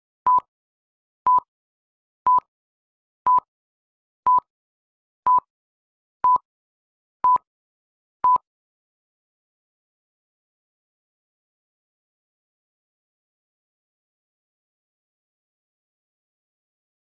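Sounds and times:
short electronic beeps: 0:01.3 - 0:01.5, 0:02.3 - 0:02.5, 0:06.2 - 0:06.4.

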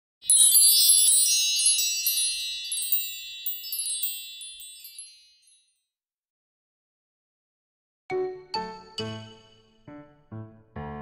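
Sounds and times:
tinkling wind chime: 0:00.2 - 0:05.9.

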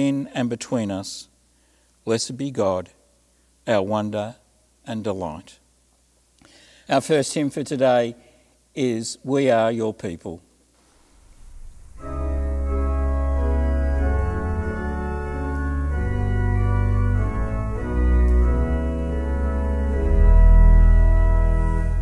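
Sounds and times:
church organ playing chords: 0:11.4 - 0:22.0.

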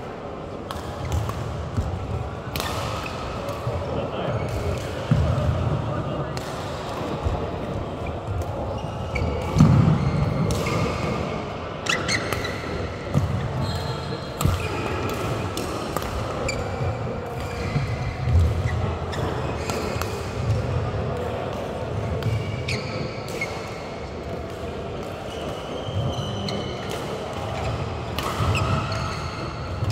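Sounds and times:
rackets striking shuttlecock: 0:00.7 - 0:03.8, 0:14.4 - 0:16.6, 0:26.8 - 0:29.9
shoes squeaking on court: 0:08.0 - 0:10.9, 0:22.3 - 0:23.6, 0:25.3 - 0:26.8.

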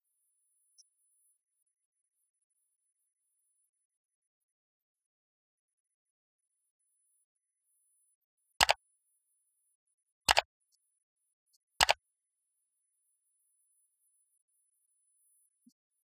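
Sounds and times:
mouse double clicks: 0:08.6 - 0:08.8, 0:10.3 - 0:10.5, 0:11.8 - 0:12.0.

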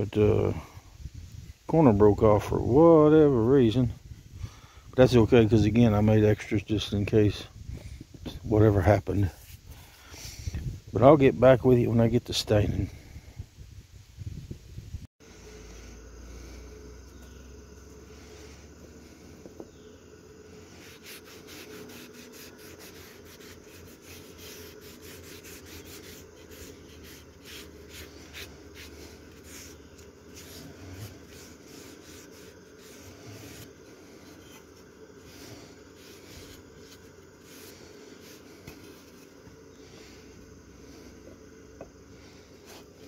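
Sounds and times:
rag rubbing on wood: 0:20.6 - 0:40.2.

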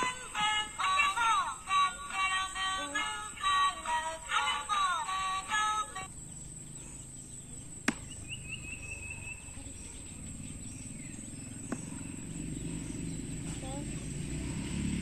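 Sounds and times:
music with singing: 0:00.0 - 0:06.1
high chirps: 0:00.0 - 0:14.3.

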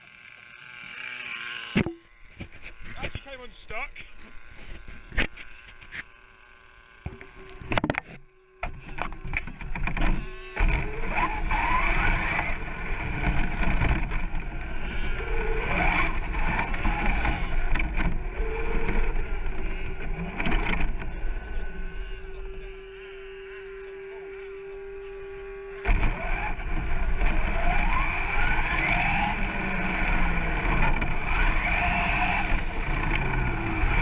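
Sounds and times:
toy truck motor whine: 0:00.0 - 0:34.0
tyres rumbling on rough ground: 0:10.6 - 0:22.8, 0:25.9 - 0:34.0.

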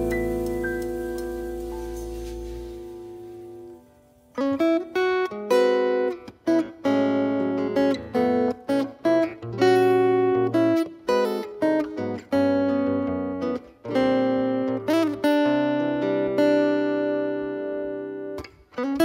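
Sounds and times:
piano chord: 0:00.0 - 0:04.4
acoustic guitar plucked chords: 0:00.0 - 0:18.4.

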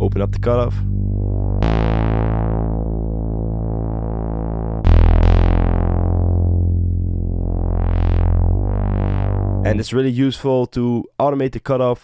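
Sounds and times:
saw-wave synth bass with filter sweep: 0:00.0 - 0:10.0.

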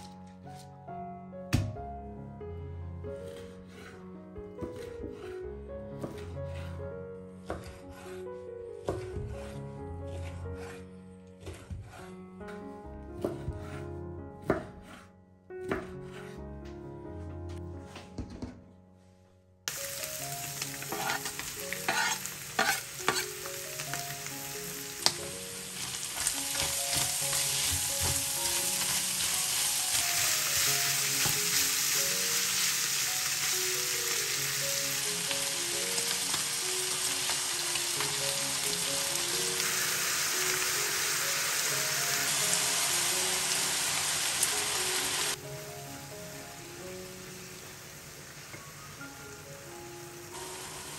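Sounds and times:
wooden spoon stirring: 0:11.4 - 0:12.2, 0:20.6 - 0:23.2, 0:25.5 - 0:31.3
meat sizzling in a frying pan: 0:19.7 - 0:50.9.

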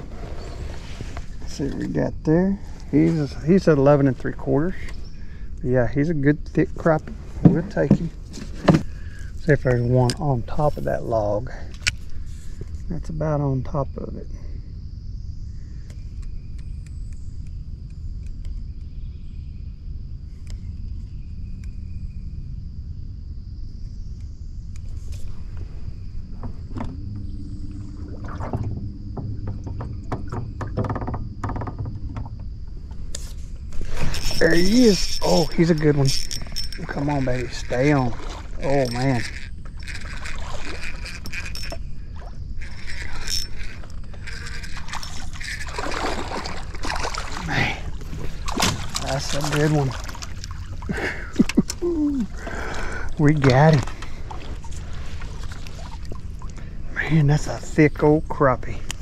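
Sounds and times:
high-pitched insect chorus: 0:00.0 - 0:59.0
low rumble: 0:19.0 - 0:39.8
fishing reel whirring and ticking: 0:33.8 - 0:49.8.

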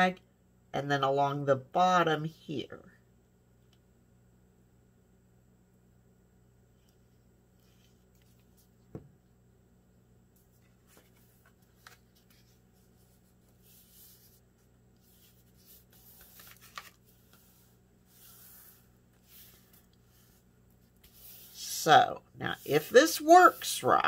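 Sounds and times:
paper rustling and rubbing: 0:10.4 - 0:21.9.

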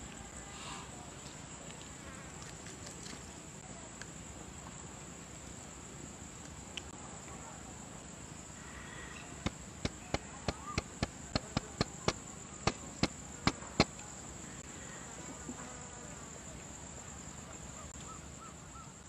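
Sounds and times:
high-pitched insect chorus: 0:00.0 - 0:19.0
sharp clicks: 0:09.4 - 0:14.0.

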